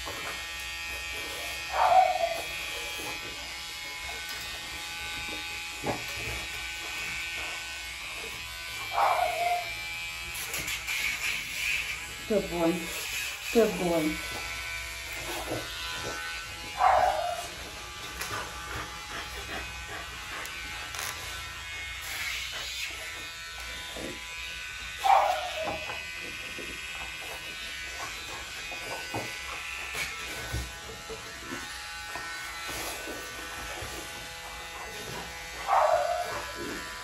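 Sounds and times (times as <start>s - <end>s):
electric nail grinder buzzing: 0.0s - 37.0s
dog crying: 1.7s - 2.6s, 8.9s - 9.8s, 16.8s - 17.6s, 25.0s - 26.0s, 35.6s - 36.6s.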